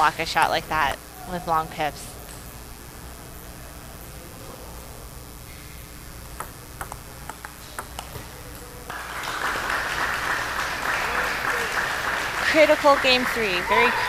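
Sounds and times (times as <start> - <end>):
table tennis ball clicking: 6.4 - 8.7
spectators applauding: 8.7 - 14.0.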